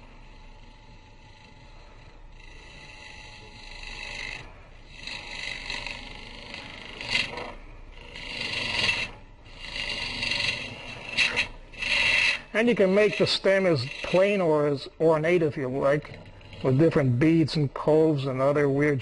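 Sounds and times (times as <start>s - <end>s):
lathe gouge scraping wood: 0.0s - 19.0s.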